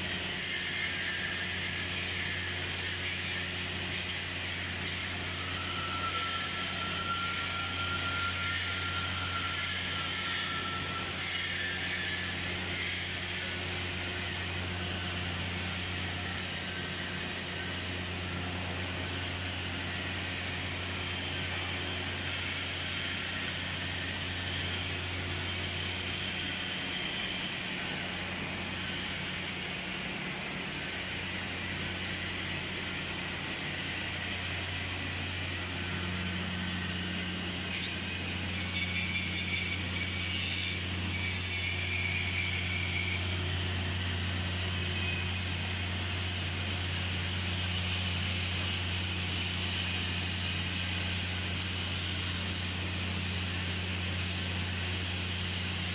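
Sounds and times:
welding hiss: 0:00.0 - 0:55.9.

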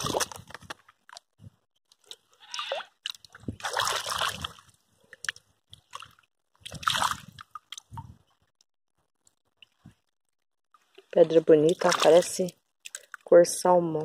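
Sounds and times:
muddy water splashing: 0:00.0 - 0:01.2, 0:01.9 - 0:08.3, 0:10.8 - 0:13.8
water drips and plops: 0:01.9 - 0:08.3, 0:10.7 - 0:13.3.

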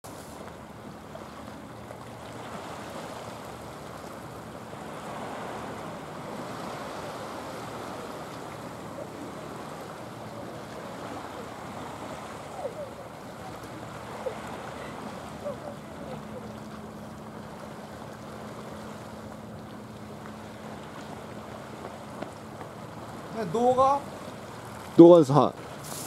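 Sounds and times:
waves washing against pebbly shore: 0:02.1 - 0:17.0, 0:20.4 - 0:26.0.

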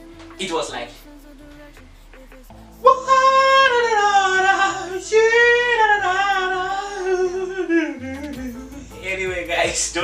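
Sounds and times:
man singing unaccompanied: 0:00.0 - 0:10.0.

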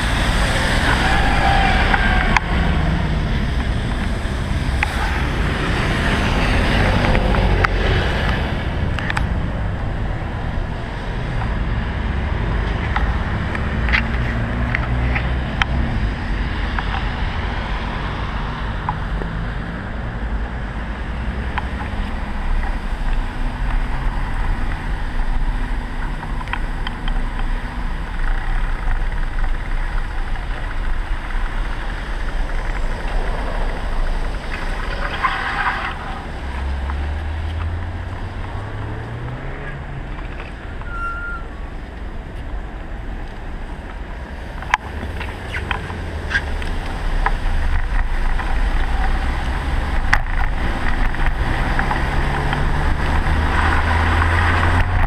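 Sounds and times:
road noise rumble: 0:00.0 - 0:55.0
vehicle engine droning: 0:00.0 - 0:55.0
brief high squeal: 0:40.8 - 0:41.5.

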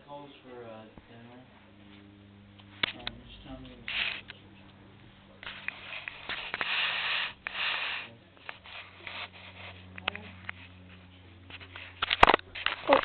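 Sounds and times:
fur rubbing on microphone: 0:03.8 - 0:04.3, 0:05.4 - 0:13.0.

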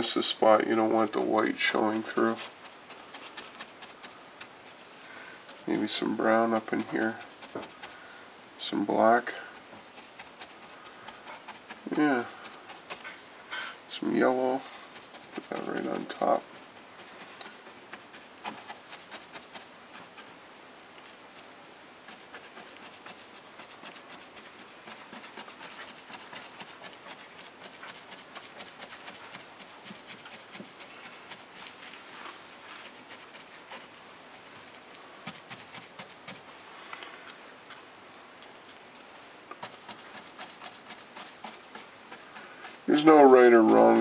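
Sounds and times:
paintbrush bristles tapping: 0:06.5 - 0:08.0, 0:14.8 - 0:20.3.

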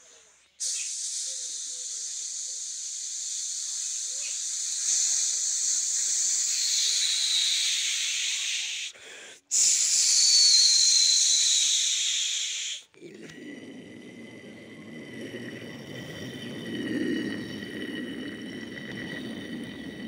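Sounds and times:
faint falling whistle: 0:10.0 - 0:12.2.

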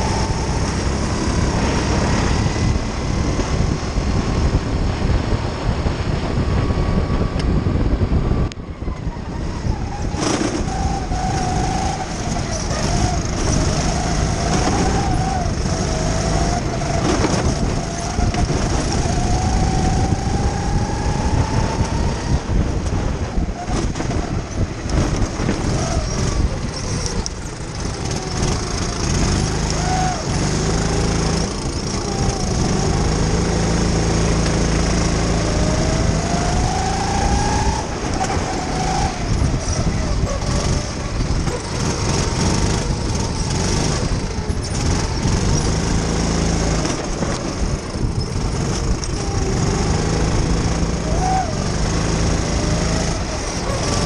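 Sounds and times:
kart engine running hard: 0:00.0 - 0:54.0.

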